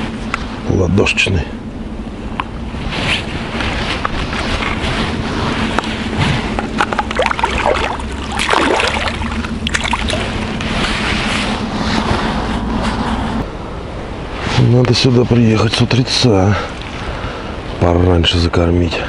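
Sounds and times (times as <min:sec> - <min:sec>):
water sloshing and splashing: 0:02.9 - 0:13.3, 0:16.6 - 0:17.5.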